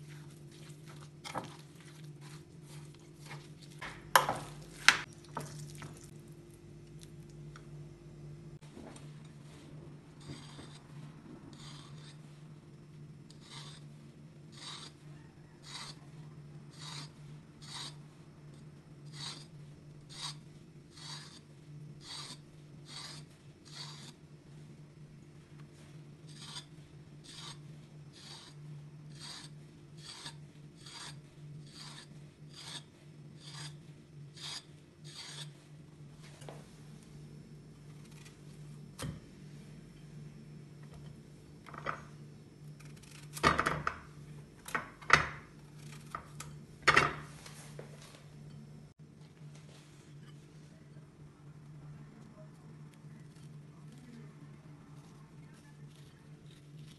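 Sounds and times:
fork scraping zucchini skin: 10.2s - 10.9s, 11.5s - 12.3s, 13.3s - 13.9s, 14.5s - 15.0s, 15.6s - 16.1s, 16.7s - 18.0s, 20.1s - 21.4s, 22.0s - 24.2s, 26.3s - 35.6s, 55.0s - 56.9s.

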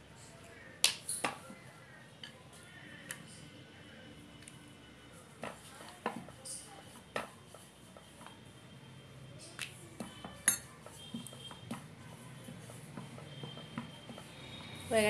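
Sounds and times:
rolling pin rolling dough: 5.2s - 8.6s, 10.0s - 14.8s.

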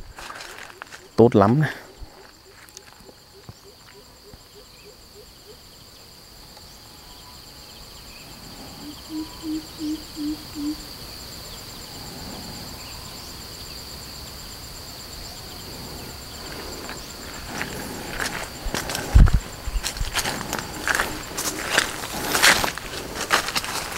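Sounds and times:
footsteps on dry leaves: 0.0s - 1.1s, 16.4s - 23.9s
high-pitched insect drone: 0.1s - 23.9s
low animal hoots: 8.2s - 10.9s.

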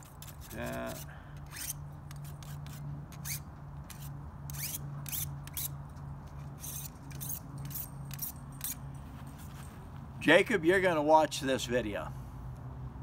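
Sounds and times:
sharpener scraping scissor blade: 0.0s - 5.8s, 6.4s - 8.8s.

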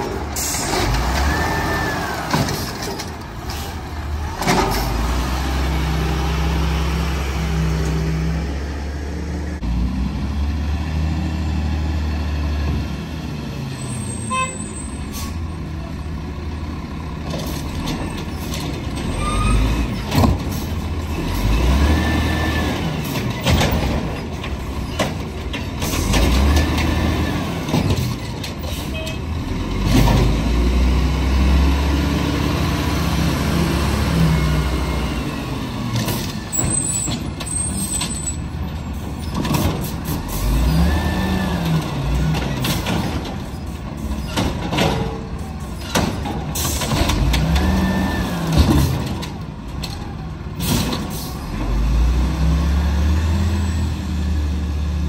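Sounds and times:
truck diesel engine revving: 3.8s - 13.7s, 20.7s - 23.3s, 29.3s - 36.1s, 39.9s - 43.2s, 46.8s - 49.1s, 51.4s - 55.0s.

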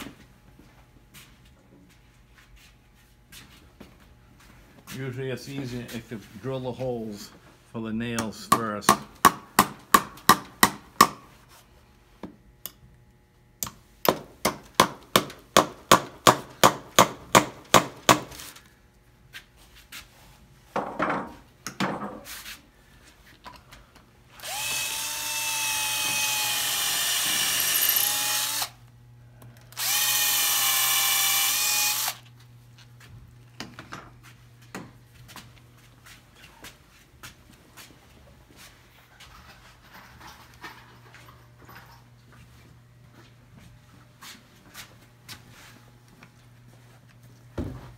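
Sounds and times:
hammer driving nails into wood: 13.6s - 18.4s
cordless drill boring into wood: 24.4s - 28.8s, 29.7s - 32.2s.

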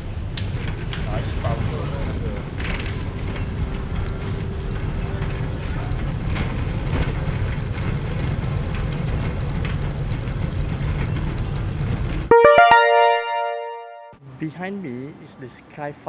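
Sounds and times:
trolley wheels rumbling on tiles: 3.1s - 12.3s.

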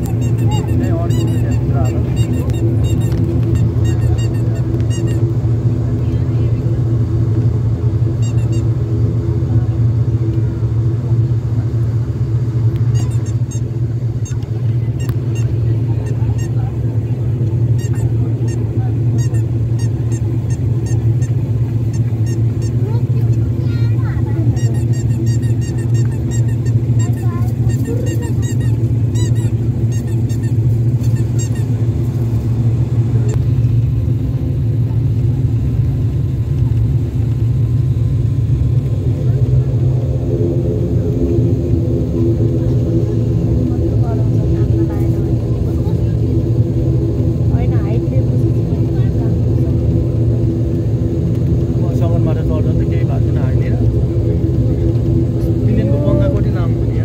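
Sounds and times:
turboprop engine cabin drone: 0.0s - 57.0s
high squeaks: 24.6s - 31.8s.

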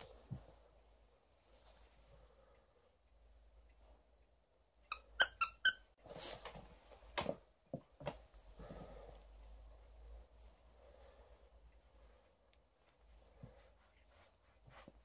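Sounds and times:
rustling: 0.0s - 4.5s, 5.9s - 15.0s
dog toy squeaking: 4.9s - 5.9s.

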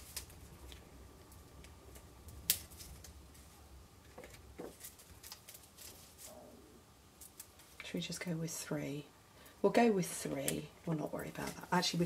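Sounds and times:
adhesive tape handling: 0.0s - 3.4s, 4.1s - 6.3s
paper handling: 4.1s - 6.3s.

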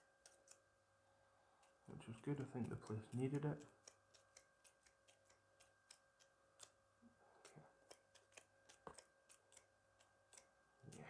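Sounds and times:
faint steady hum: 0.0s - 11.0s
scissors snipping clicks: 0.2s - 0.6s, 1.6s - 6.8s, 7.4s - 10.5s.

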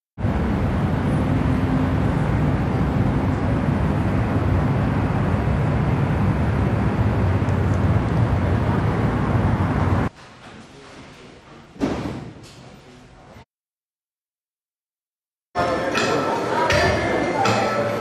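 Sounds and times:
city street traffic rumble: 0.2s - 10.2s.

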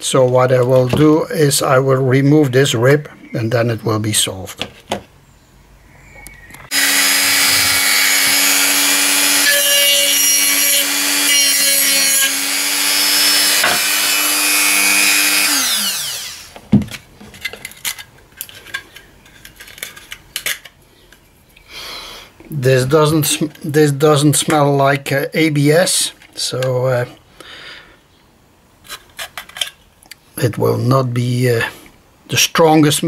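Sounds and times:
rotary tool grinding plastic: 6.7s - 16.6s.

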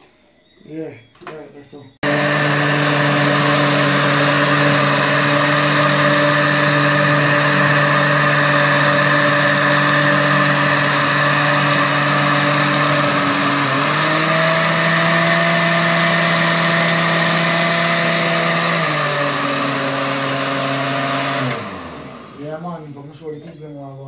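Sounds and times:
blender motor running: 2.0s - 22.6s.

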